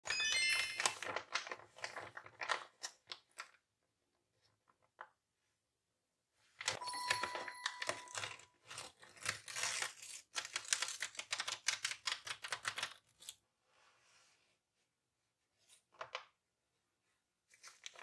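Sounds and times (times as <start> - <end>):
paper crinkling and crackling: 0.3 - 3.6, 6.6 - 13.4, 17.5 - 18.0.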